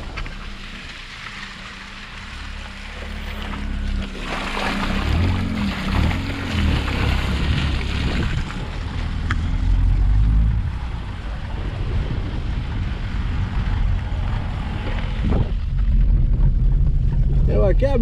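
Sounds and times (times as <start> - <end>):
car engine running: 0.0 - 18.0
tyre noise on wet ground: 0.0 - 18.0
wind buffeting microphone: 4.9 - 18.0.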